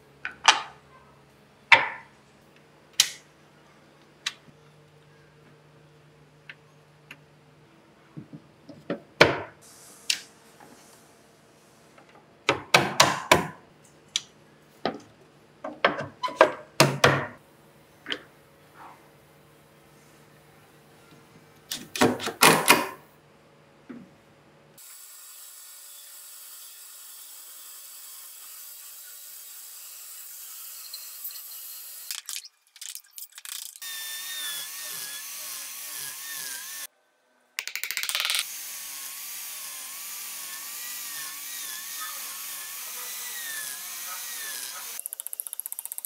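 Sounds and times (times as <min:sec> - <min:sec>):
angle grinder whining: 0:33.8 - 0:36.9, 0:38.4 - 0:45.0
band saw cutting wood: 0:33.8 - 0:36.9, 0:38.4 - 0:45.2.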